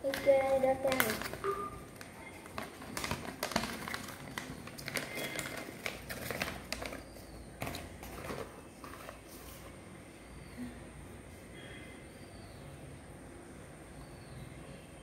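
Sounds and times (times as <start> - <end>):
paper rustling and crinkling: 0.0 - 9.9.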